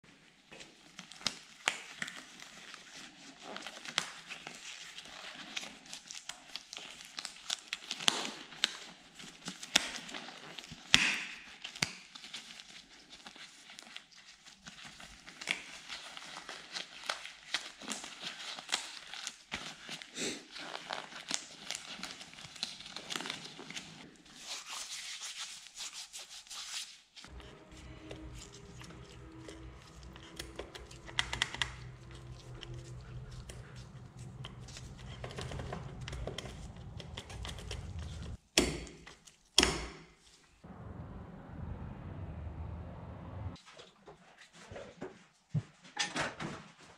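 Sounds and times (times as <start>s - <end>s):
rubber gloves rustling: 11.5s - 40.6s.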